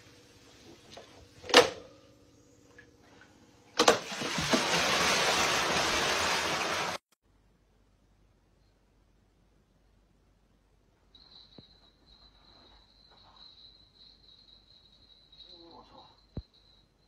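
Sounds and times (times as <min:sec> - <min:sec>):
water splashing and pouring: 0:03.8 - 0:07.1.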